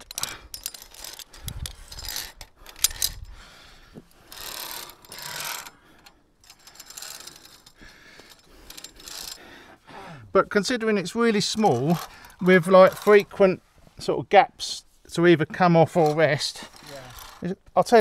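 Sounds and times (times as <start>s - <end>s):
carabiners clinking on metal: 0.0s - 3.4s, 4.2s - 9.5s, 11.2s - 13.4s, 15.8s - 18.0s.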